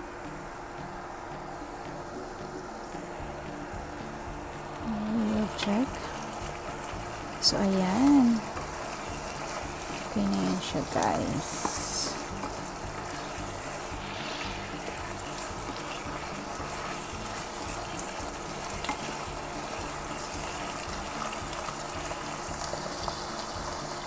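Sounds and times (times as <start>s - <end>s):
food sizzling in a wok: 0.0s - 24.0s
spatula tapping pan: 11.6s - 13.9s, 14.8s - 23.9s.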